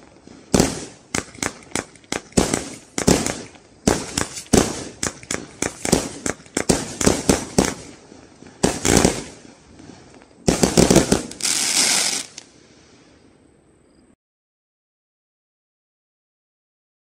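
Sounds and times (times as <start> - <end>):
firework shells bursting: 0.0 - 12.5
firework crackling: 0.0 - 13.1.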